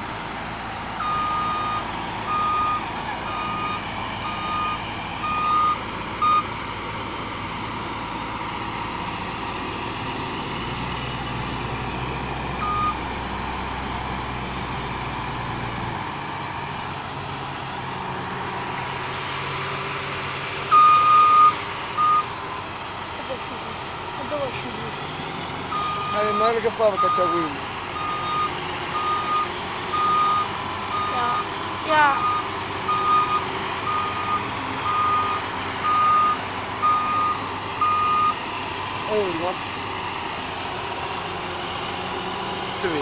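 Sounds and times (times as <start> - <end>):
tractor diesel engines running: 0.0 - 43.0
reversing alarm beeping: 1.0 - 6.6, 12.6 - 13.0, 20.7 - 22.3, 25.7 - 38.4.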